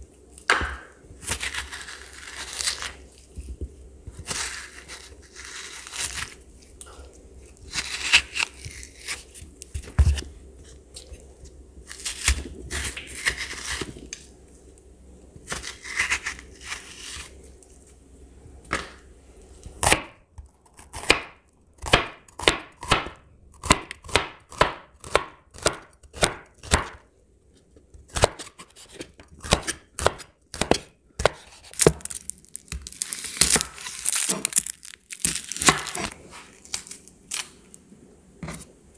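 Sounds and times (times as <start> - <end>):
scraping out seeds: 4.1 - 6.7, 31.4 - 37.8.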